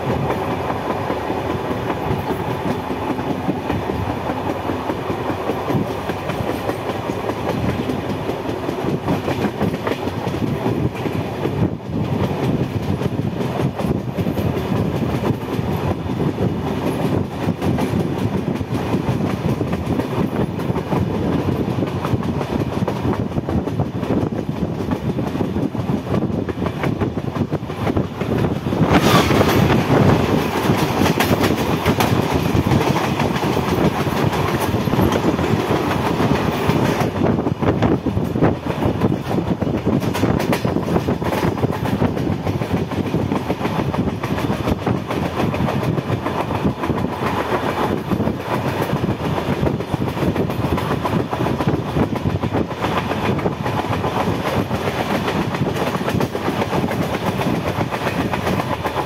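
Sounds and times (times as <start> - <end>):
train wheels rumbling on rails: 0.0 - 59.0
wheels clicking over rail joints: 26.2 - 59.0.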